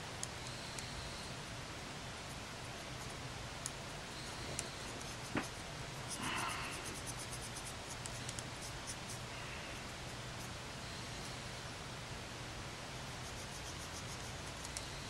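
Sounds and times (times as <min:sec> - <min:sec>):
steady hiss: 0:00.0 - 0:15.0
soft regular ticks: 0:03.0 - 0:09.3, 0:13.2 - 0:15.0.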